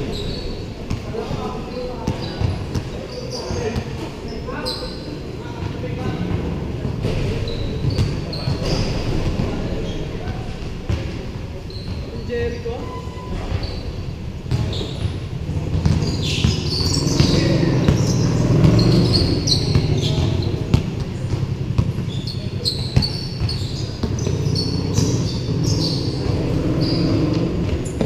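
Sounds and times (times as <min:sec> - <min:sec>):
players' voices: 0:00.0 - 0:28.0
sneaker squeaks: 0:00.0 - 0:28.0
basketball dribble thuds: 0:14.5 - 0:25.4.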